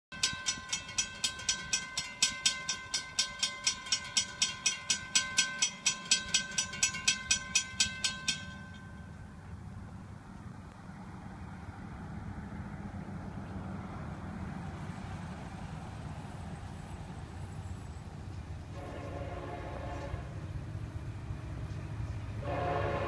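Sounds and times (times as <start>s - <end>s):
railroad crossing bell ringing: 0.1s - 9.8s, 13.8s - 21.3s.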